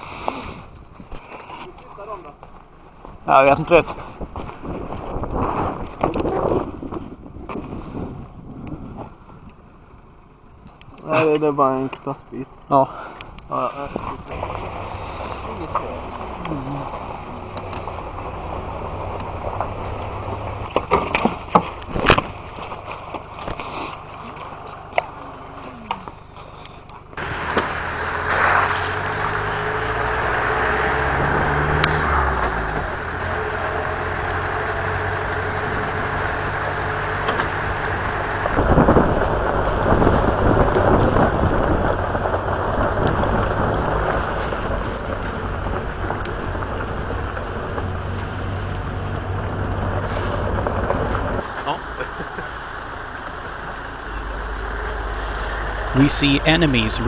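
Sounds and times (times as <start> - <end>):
car engine accelerating: 13.6 - 26.2, 27.1 - 57.0
knocks and handling clatter: 19.0 - 25.2.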